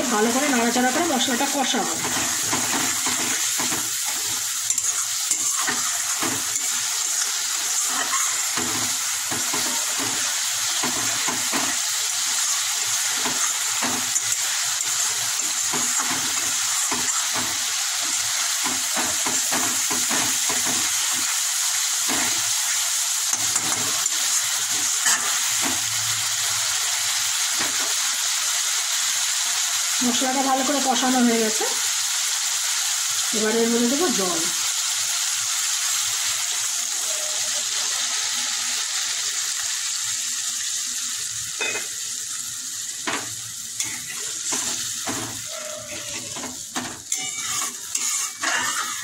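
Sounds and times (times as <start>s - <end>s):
masala sizzling in hot oil: 0.0s - 49.0s
metal spatula scraping pan: 1.8s - 21.4s, 43.8s - 49.0s.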